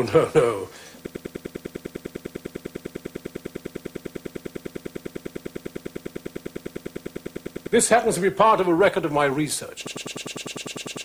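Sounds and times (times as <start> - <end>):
rapid electronic pulsing tone: 0.0 - 11.0.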